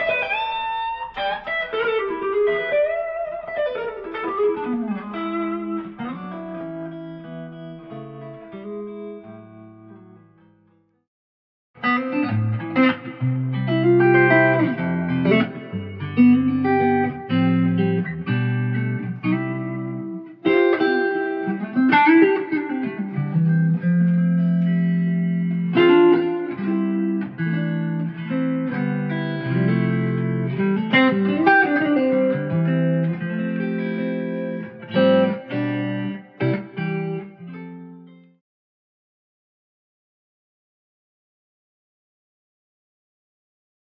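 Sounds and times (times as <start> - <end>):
electric guitar chords and melody: 0.0 - 10.8, 11.8 - 38.4.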